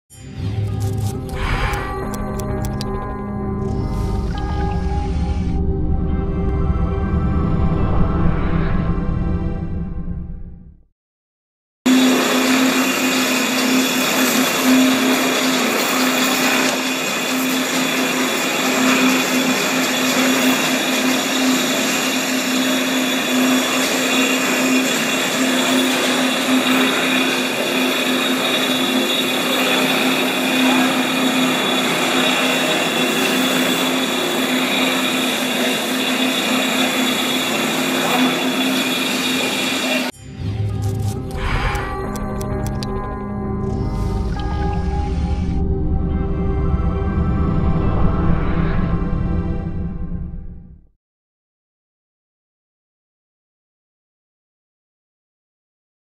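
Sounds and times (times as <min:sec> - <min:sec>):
low motor hum: 0:00.2 - 0:10.8, 0:11.9 - 0:50.8
floor grinder grinding: 0:11.9 - 0:45.5.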